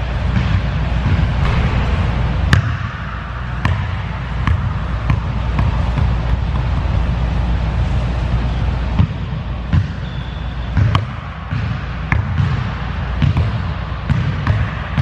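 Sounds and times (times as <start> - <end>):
steady low rumble: 0.8 - 8.9.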